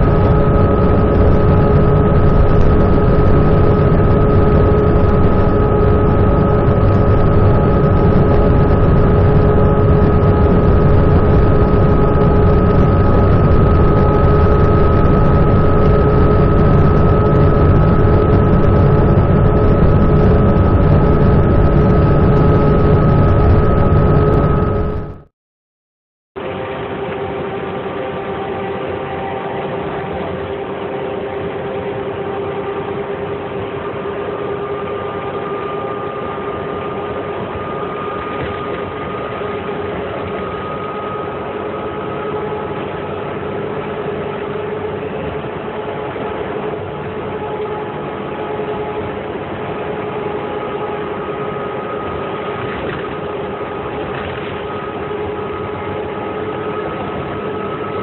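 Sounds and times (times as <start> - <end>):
steady whine: 0.0 - 25.3, 26.4 - 58.0.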